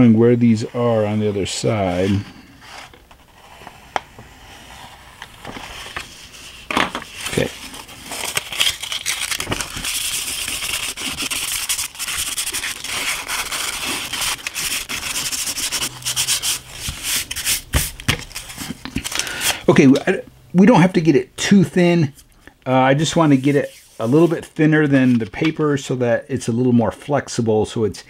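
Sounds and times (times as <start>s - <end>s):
sandpaper scratching on paper: 9.1s - 18.6s.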